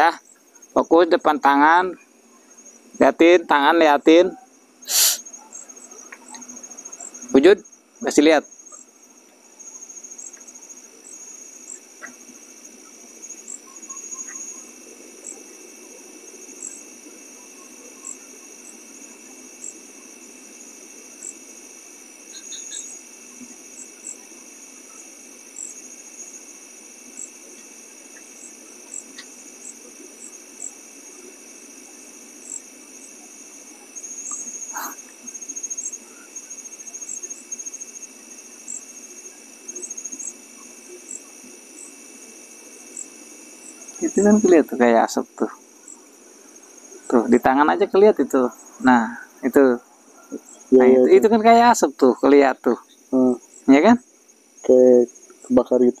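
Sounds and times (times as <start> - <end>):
insect chirping: 0.0 - 56.0
insects trilling: 0.0 - 56.0.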